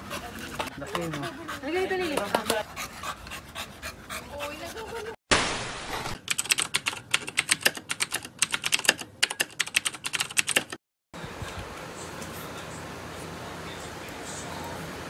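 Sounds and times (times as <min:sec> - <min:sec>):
keyboard typing: 0:06.2 - 0:10.8.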